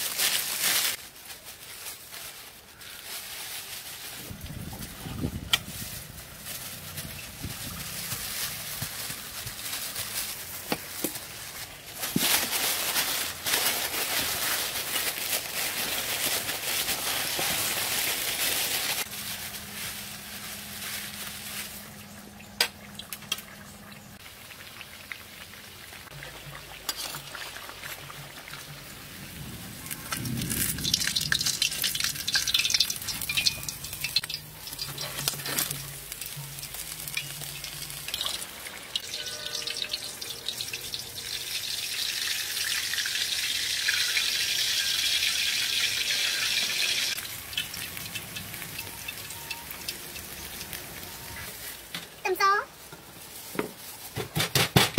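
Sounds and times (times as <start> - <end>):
plastic wrap crinkling: 0.0 - 21.9, 29.7 - 41.5
oil sizzling and crackling: 0.0 - 54.3.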